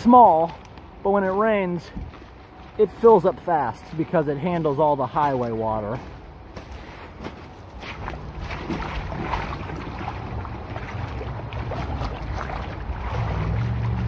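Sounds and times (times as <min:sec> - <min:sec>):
stream water flowing: 0:07.2 - 0:14.0
water splashes: 0:07.7 - 0:14.0.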